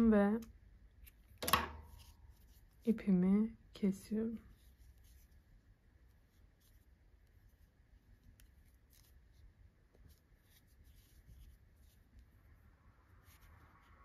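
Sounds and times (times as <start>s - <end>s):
fingers rustling yarn: 0.0s - 14.0s.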